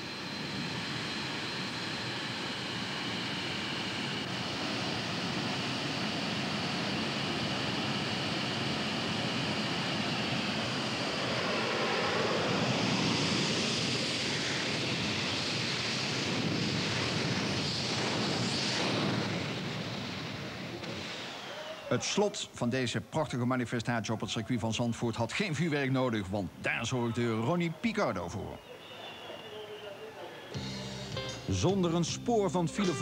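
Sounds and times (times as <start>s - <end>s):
jet engine roaring: 0.0s - 22.5s.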